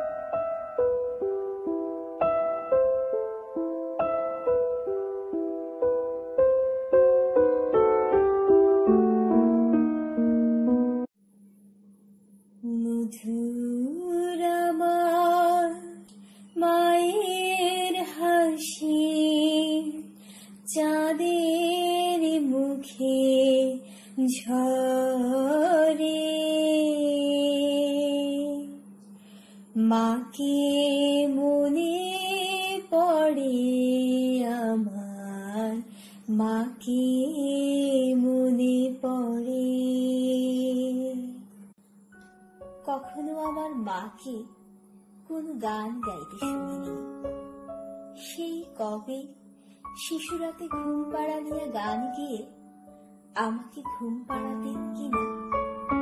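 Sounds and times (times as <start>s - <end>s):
woman singing unaccompanied: 12.6s - 28.9s, 29.8s - 41.5s, 42.8s - 44.5s, 45.3s - 47.3s, 48.1s - 52.6s, 53.3s - 55.5s.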